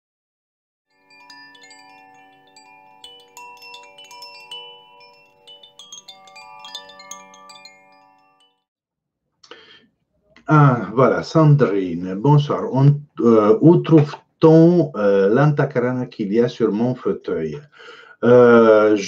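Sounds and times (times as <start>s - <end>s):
chimes ringing: 0.9s - 8.7s.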